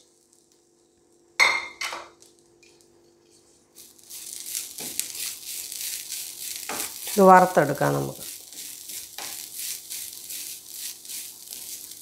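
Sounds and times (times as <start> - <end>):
wooden spatula scraping a pan: 3.2 - 7.4, 8.2 - 12.0.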